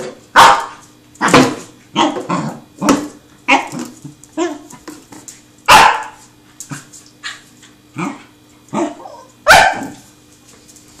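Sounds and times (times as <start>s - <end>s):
puppy barking: 0.4s - 2.3s, 4.4s - 4.7s, 5.7s - 6.2s, 8.0s - 10.0s.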